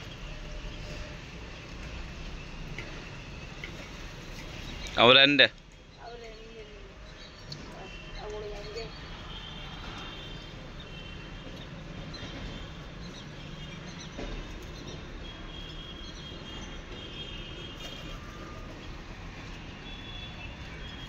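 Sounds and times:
small birds chirping: 0:04.4 - 0:19.1.

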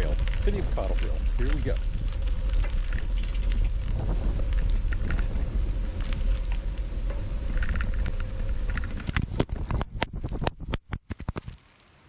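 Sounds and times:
wind rumble: 0:00.0 - 0:11.8
bike tyres rolling on gravel: 0:00.0 - 0:12.0
camera falling and clattering: 0:08.8 - 0:11.6.

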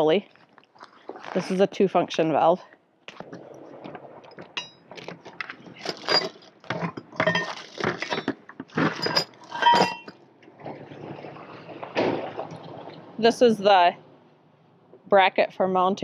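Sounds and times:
rummaging in plastic bucket: 0:00.3 - 0:01.7, 0:03.1 - 0:11.6
metal parts clinking: 0:04.6 - 0:10.2.

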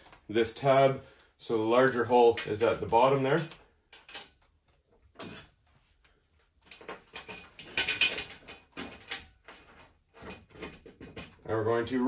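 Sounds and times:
metal rail clicking and rattling: 0:06.7 - 0:11.4.

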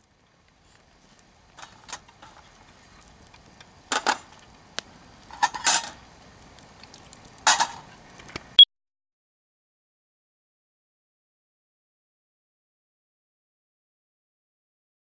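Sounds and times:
metal objects clinking: 0:05.3 - 0:06.0.

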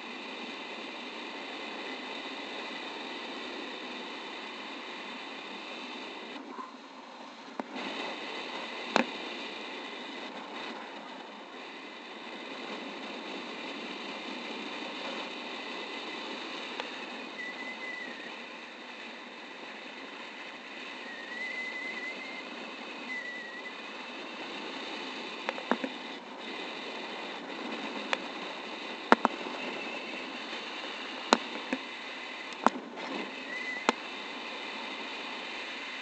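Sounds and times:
faint wavering high tone: 0:17.3 - 0:18.3.

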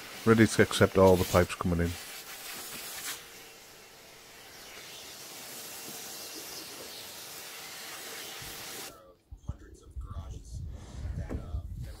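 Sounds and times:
vacuum cleaner running: 0:00.0 - 0:08.9.

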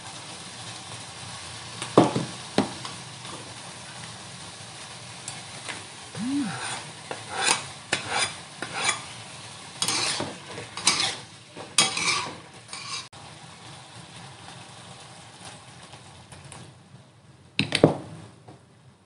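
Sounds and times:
food sizzling: 0:00.0 - 0:17.1
spatula scraping a wok: 0:06.5 - 0:13.1.

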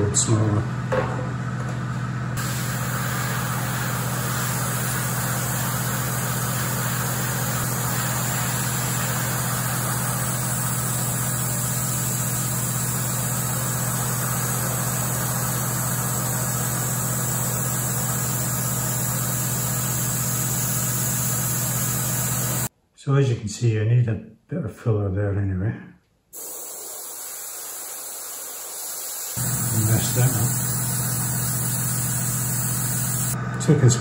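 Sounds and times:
compressor humming: 0:00.0 - 0:22.7, 0:26.4 - 0:34.0
airbrush hissing air: 0:02.4 - 0:22.7, 0:26.4 - 0:33.4.

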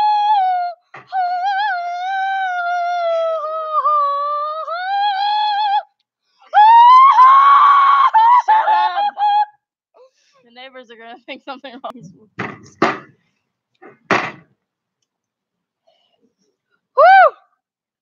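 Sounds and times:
child wailing and screaming: 0:00.0 - 0:05.8, 0:06.5 - 0:09.6, 0:17.0 - 0:17.4.

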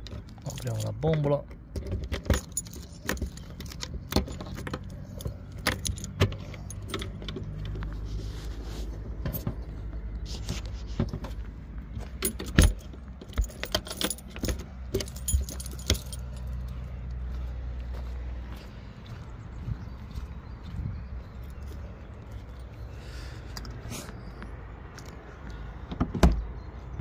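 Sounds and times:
keys jangling in a lock: 0:00.3 - 0:01.2, 0:01.8 - 0:07.6, 0:12.2 - 0:16.6.

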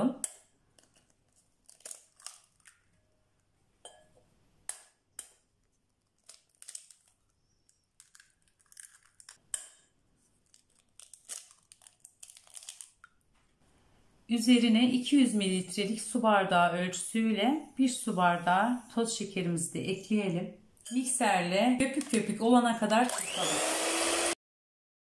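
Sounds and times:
eggshells cracking: 0:00.3 - 0:03.0, 0:04.7 - 0:13.3.

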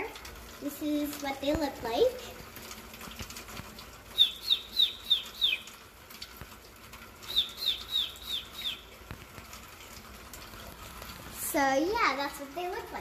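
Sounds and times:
songbird chirping: 0:04.1 - 0:05.8, 0:07.2 - 0:09.0.

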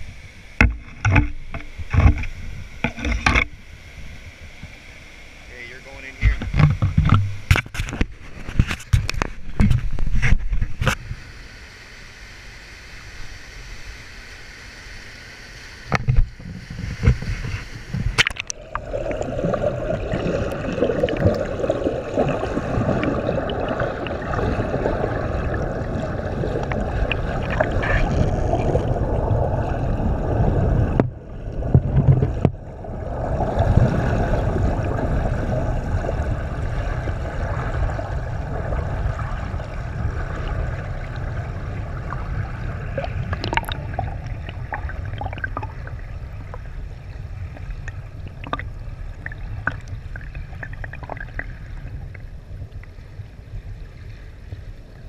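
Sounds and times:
camera knocks and bumps: 0:06.2 - 0:10.8
underwater whitewater roar: 0:11.0 - 0:55.0.

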